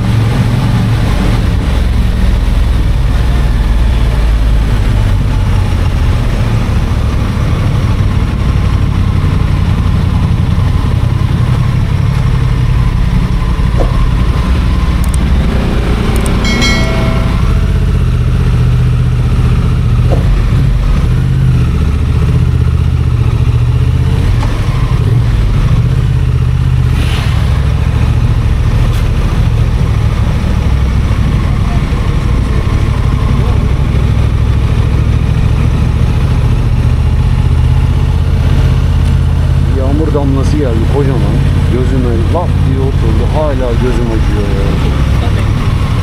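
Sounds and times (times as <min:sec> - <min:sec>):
motorcycle engine rumbling: 0:00.0 - 0:46.0
wind and road noise: 0:00.0 - 0:46.0
short pitched tone: 0:16.2 - 0:19.4.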